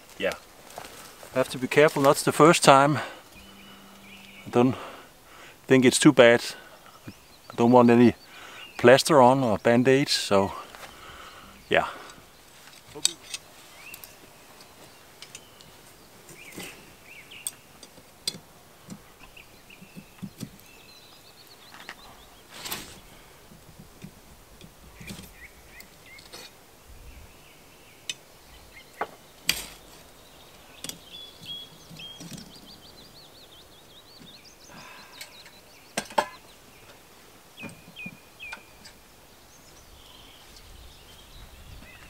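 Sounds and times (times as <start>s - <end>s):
birds chirping: 0.0s - 42.0s
bird trill: 3.2s - 4.8s, 30.2s - 36.9s.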